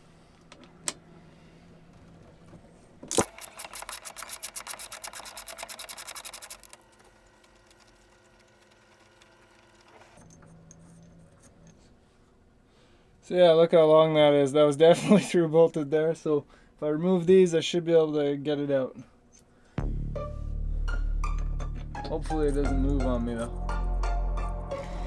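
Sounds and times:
ratchet wrench clicking: 0:03.1 - 0:06.7.

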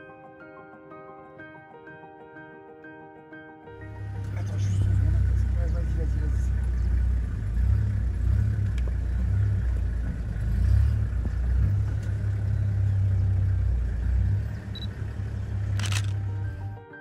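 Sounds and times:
vehicle engine idling: 0:03.8 - 0:16.8.

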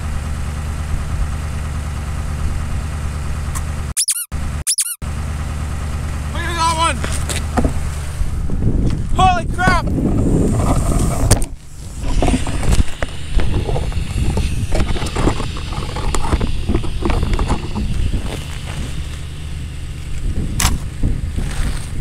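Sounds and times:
wind buffeting microphone: 0:07.6 - 0:22.0
sharp click: 0:20.6 - 0:20.8.

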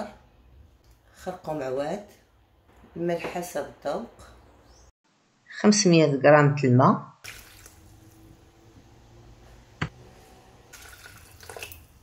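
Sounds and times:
water pouring and splashing: 0:07.2 - 0:08.3, 0:10.7 - 0:12.0.

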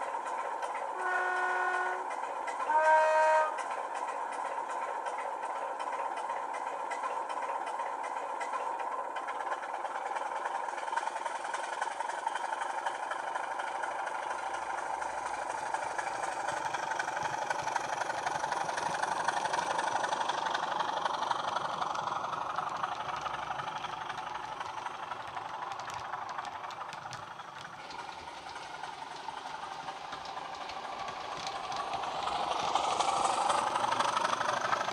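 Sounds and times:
diesel engine sound from speaker: 0:31.8 - 0:34.9.

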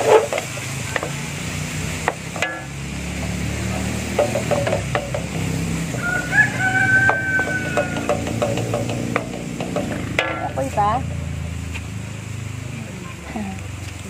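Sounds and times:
spatula scraping and tapping pan: 0:00.0 - 0:06.2, 0:06.9 - 0:11.1
meat sizzling in a wok: 0:00.0 - 0:12.7
rooster crowing: 0:05.7 - 0:09.2.

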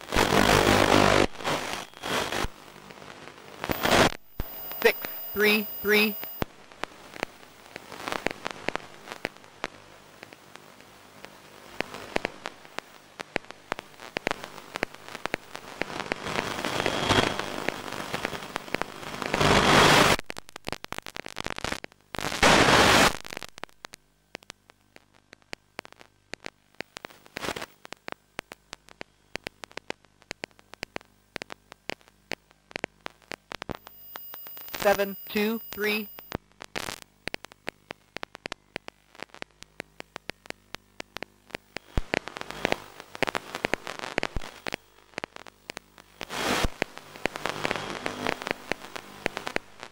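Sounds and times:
crackling radio static: 0:00.0 - 0:49.9.

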